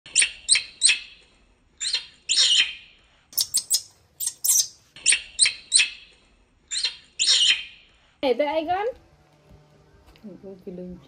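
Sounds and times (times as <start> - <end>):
baby monkey screaming: 3.4 - 6.0.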